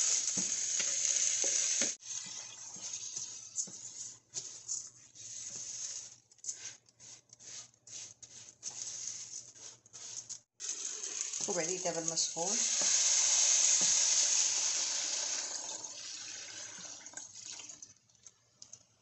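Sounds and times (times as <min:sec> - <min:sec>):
rice sizzling in hot pan: 0:00.0 - 0:03.7, 0:10.6 - 0:16.0
spatula stirring rice: 0:00.2 - 0:10.6, 0:11.4 - 0:14.3.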